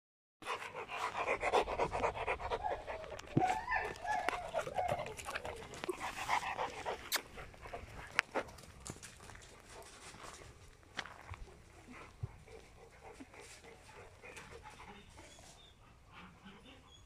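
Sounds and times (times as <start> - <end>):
dog panting quickly: 0.4 - 3.4, 4.4 - 8.7, 11.4 - 16.8.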